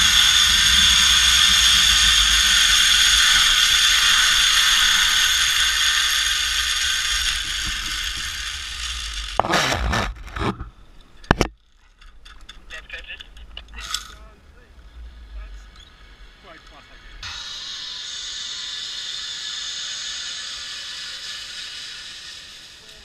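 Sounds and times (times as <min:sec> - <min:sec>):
zip-line pulley whining: 0:00.0 - 0:10.6, 0:15.8 - 0:23.0.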